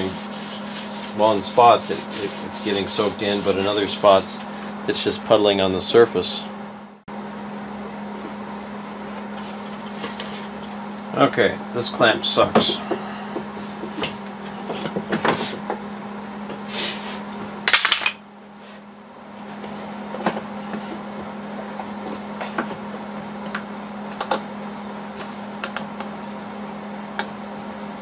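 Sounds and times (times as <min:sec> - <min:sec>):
steady low hum: 0:00.0 - 0:28.0.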